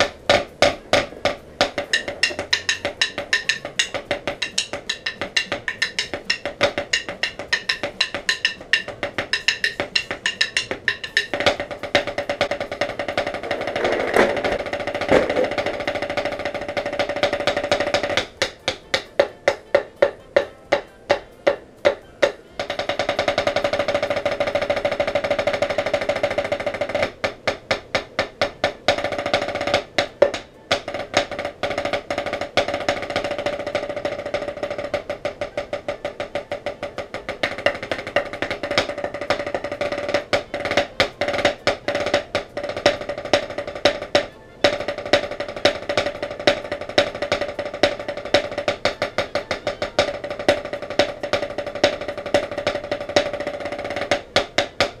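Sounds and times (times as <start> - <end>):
snare drumming with sticks: 0.0 - 55.0.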